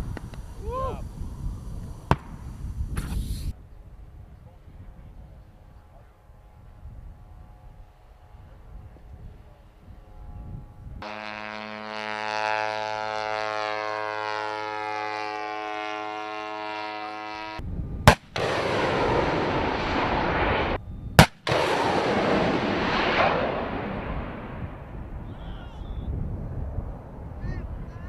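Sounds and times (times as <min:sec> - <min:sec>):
steady pitched drone: 0:11.0 - 0:17.6
rushing missile launch noise: 0:18.0 - 0:25.3
missile launch bang: 0:18.1 - 0:25.1.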